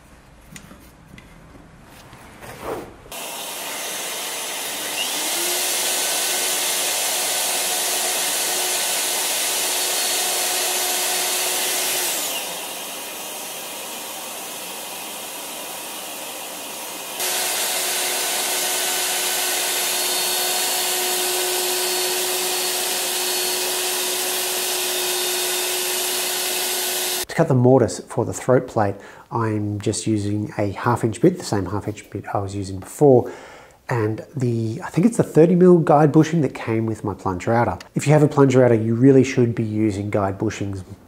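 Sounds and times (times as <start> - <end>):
router whining: 3.1 - 27.3.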